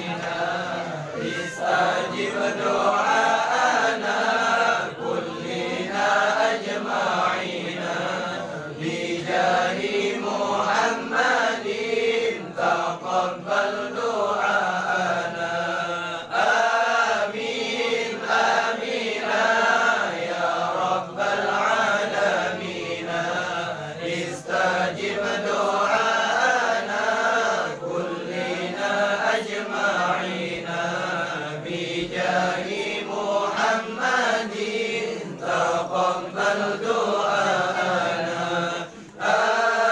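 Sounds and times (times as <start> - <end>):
men chanting prayers in unison: 0.0 - 39.9.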